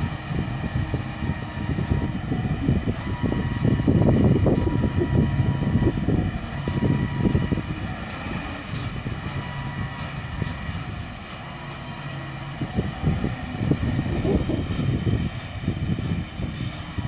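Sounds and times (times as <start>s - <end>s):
low tractor rumble: 0.0s - 17.0s
machinery whine: 0.0s - 17.0s.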